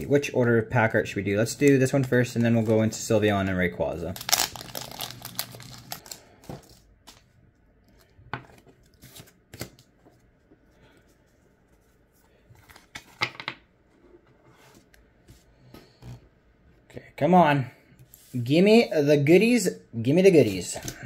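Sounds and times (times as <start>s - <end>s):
trading cards being handled: 1.4s - 7.3s, 7.9s - 13.5s
foil wrapper tearing and crinkling: 4.1s - 6.4s.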